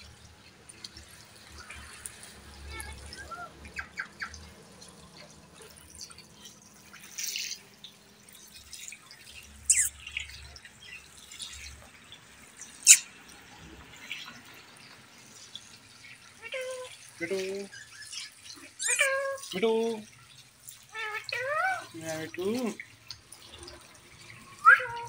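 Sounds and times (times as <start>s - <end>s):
parrot squeaks and clicks: 9.7s - 10.0s, 12.8s - 13.1s, 17.8s - 19.3s
parrot shrill calls: 9.7s - 10.1s, 12.8s - 13.1s, 17.7s - 19.4s, 20.9s - 21.8s, 24.6s - 25.0s.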